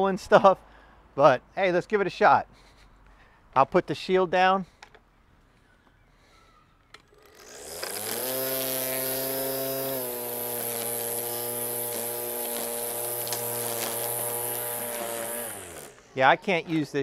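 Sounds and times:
string trimmer motor whine: 6.9 - 16.2.

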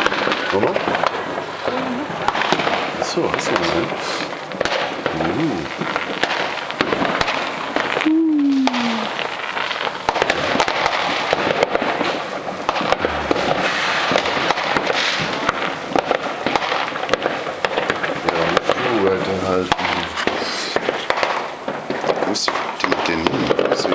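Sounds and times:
fireworks popping and crackling: 0.0 - 23.9
falling tone: 8.0 - 9.1, 12.8 - 14.5.

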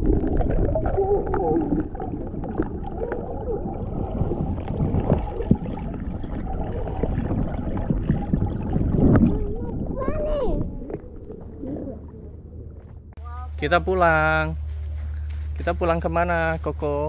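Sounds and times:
underwater rumble and gurgle: 0.0 - 13.2.

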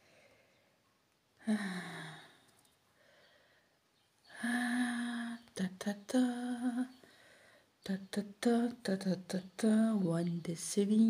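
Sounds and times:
woman humming: 1.4 - 2.4, 4.4 - 6.9.

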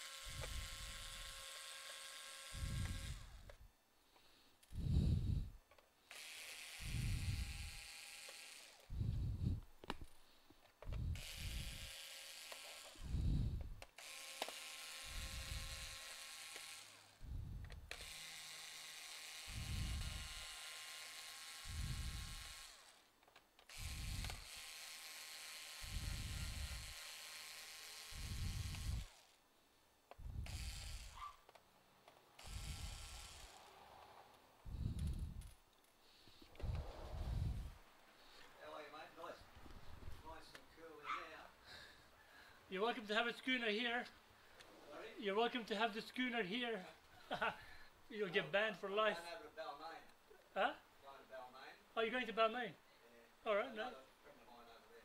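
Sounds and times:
electric screwdriver running: 0.0 - 3.6, 6.1 - 8.9, 11.0 - 13.3, 13.9 - 17.2, 17.8 - 23.1, 23.7 - 29.4, 30.3 - 31.3, 32.4 - 33.7.

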